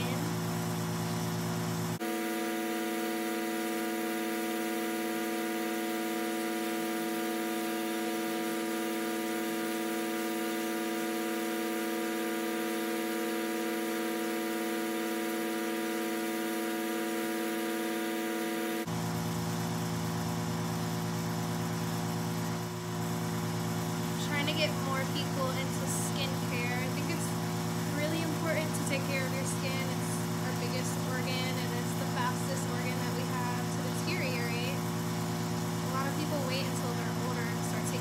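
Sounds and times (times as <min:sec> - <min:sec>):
machine motor humming: 0:00.0 - 0:38.0.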